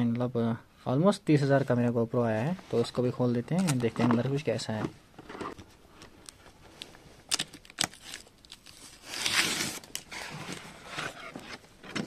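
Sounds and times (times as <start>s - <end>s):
packaging clicks and crinkling: 5.5s - 12.0s
packaging tearing: 7.3s - 10.6s.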